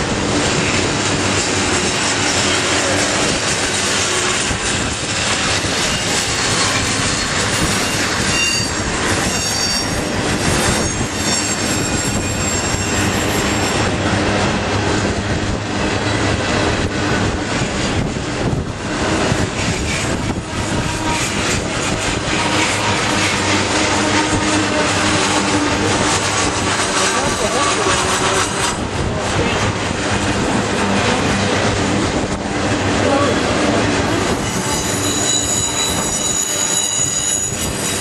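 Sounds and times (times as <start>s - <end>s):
train wheels rumbling on rail: 0.0s - 38.0s
high wheel squealing: 1.3s - 14.0s, 19.2s - 28.9s, 34.0s - 38.0s.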